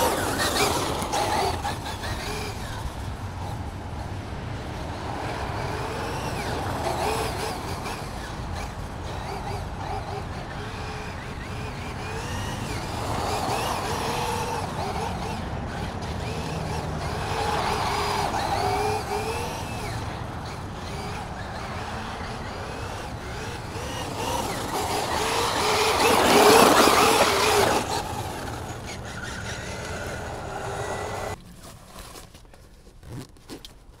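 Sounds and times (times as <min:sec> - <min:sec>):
electric motor whining: 0:05.7 - 0:31.4.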